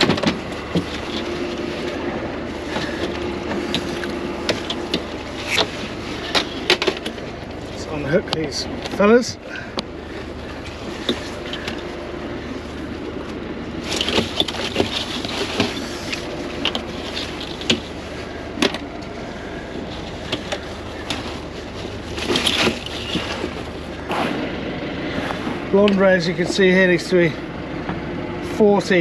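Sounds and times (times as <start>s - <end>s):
gear knocking and clattering on deck: 0.0s - 12.0s, 13.8s - 24.2s
boat engine running: 0.0s - 29.0s.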